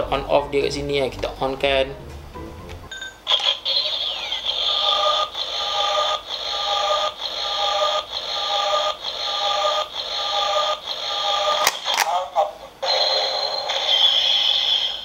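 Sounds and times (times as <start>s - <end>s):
toy belt electronic sound effect: 3.3s - 15.0s.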